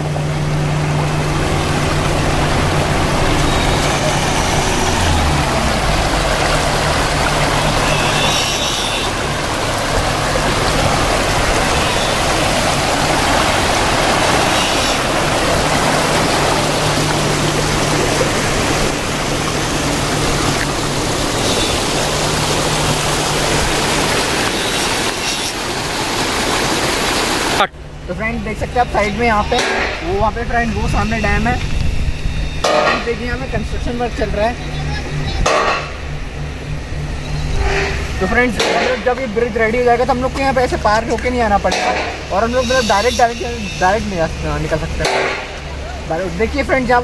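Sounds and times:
stream rushing over rocks: 0:00.0 - 0:27.7.

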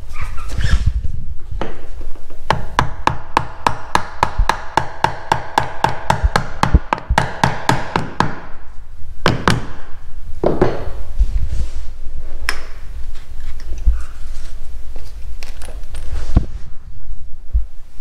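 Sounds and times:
hammer tapping wood: 0:02.5 - 0:08.4.

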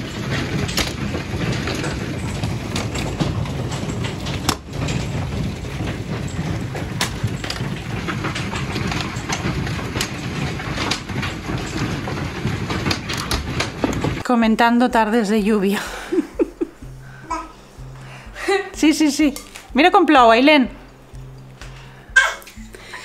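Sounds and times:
hail clattering on cars and gravel: 0:00.0 - 0:14.2.

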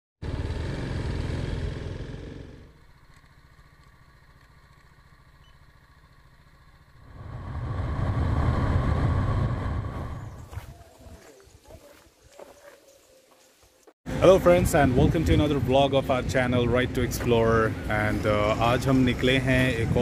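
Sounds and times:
motorcycle engine running: 0:00.2 - 0:10.6, 0:14.1 - 0:20.0.

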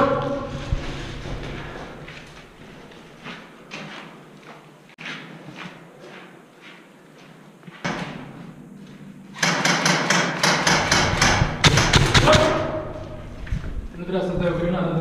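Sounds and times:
airsoft guns firing: 0:09.4 - 0:13.0.

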